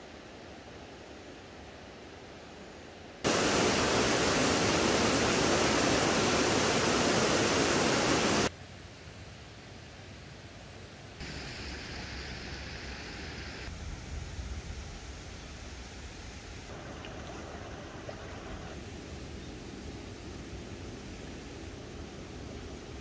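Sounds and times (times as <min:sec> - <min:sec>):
stream water rushing: 0:03.2 - 0:08.5, 0:11.2 - 0:13.7, 0:16.4 - 0:18.8.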